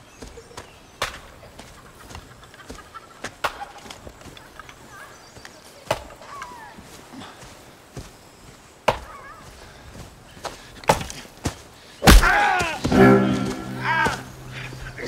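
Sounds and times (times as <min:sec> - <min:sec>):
bird calls: 0:00.0 - 0:15.0
axe chopping wood: 0:12.0 - 0:13.0.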